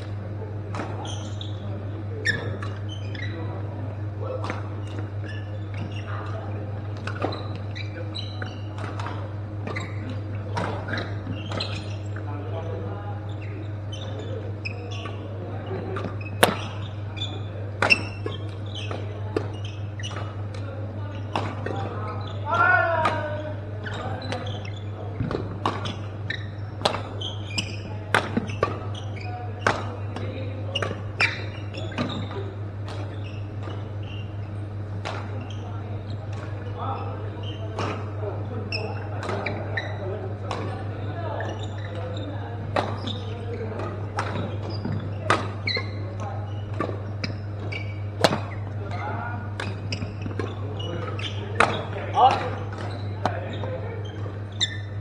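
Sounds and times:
shoe squeaks on court floor: 0.0 - 55.0
racket hitting shuttlecock: 16.0 - 20.6, 25.2 - 35.6, 40.5 - 40.7, 42.6 - 54.9.

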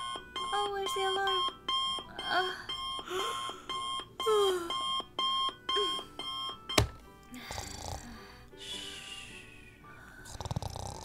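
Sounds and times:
alarm clock beeping: 0.0 - 7.0.

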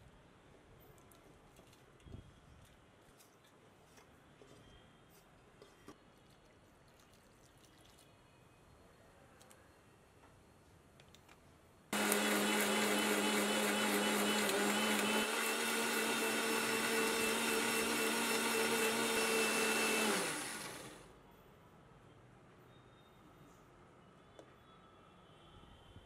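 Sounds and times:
electric mixer grinder grinding: 12.0 - 21.0.

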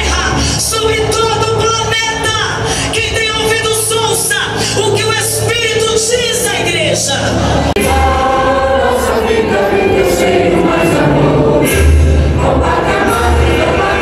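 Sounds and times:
deep bass notes: 6.8 - 14.0
choir singing long notes: 7.4 - 14.0.

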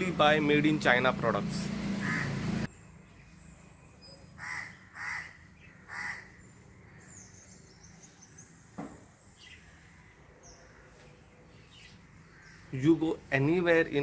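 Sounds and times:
crow cawing: 2.0 - 2.4, 4.4 - 7.1
small birds chirping: 2.0 - 14.0.

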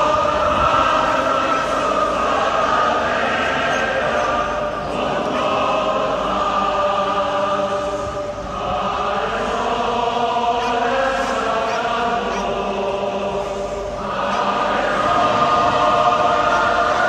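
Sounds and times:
crowd chanting: 0.0 - 17.0.

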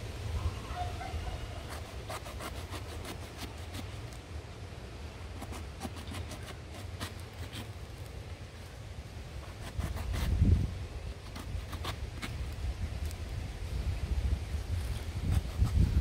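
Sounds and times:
knife scraping fruit rind: 1.6 - 4.2, 5.3 - 8.2, 9.4 - 13.2, 14.8 - 16.0.

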